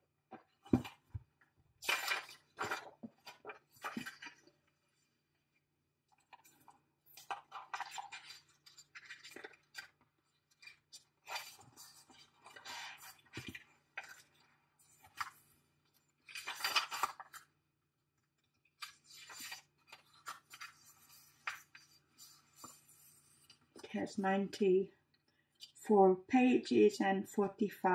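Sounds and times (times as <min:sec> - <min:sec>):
paper and card rustling: 0:01.8 - 0:05.1, 0:06.2 - 0:17.5, 0:18.8 - 0:24.1.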